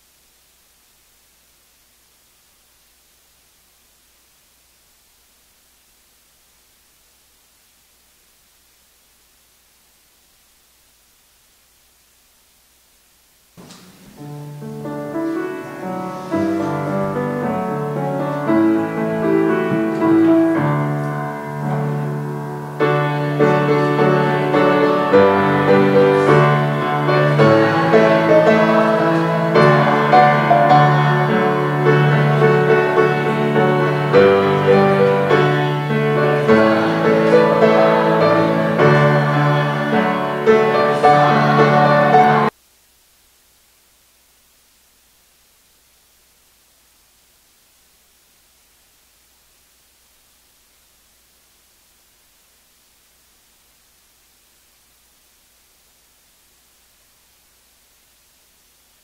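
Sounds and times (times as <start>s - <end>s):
slow keyboard music: 14.0s - 42.5s.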